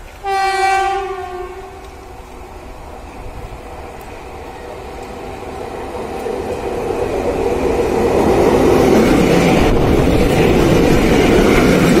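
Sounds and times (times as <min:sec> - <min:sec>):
electric locomotive passing: 0:00.0 - 0:12.0.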